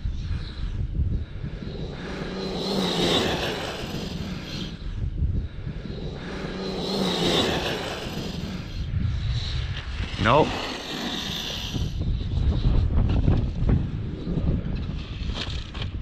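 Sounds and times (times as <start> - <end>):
electric motor whine: 1.5 - 4.8, 5.9 - 8.9, 9.6 - 12.0.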